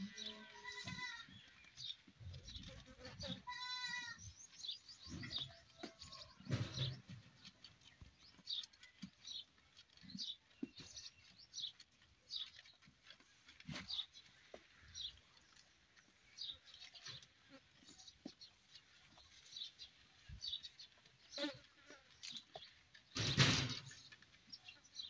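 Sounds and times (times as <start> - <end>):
goat bleating: 0.0 - 1.6, 2.7 - 4.3.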